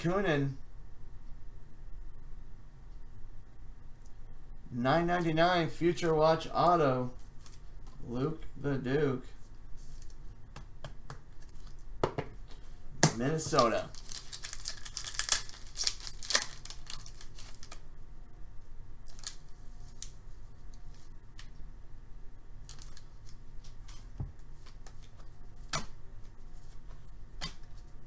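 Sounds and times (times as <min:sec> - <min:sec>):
foil wrapper crinkling: 0:13.4 - 0:17.8, 0:19.0 - 0:21.1, 0:22.6 - 0:25.3.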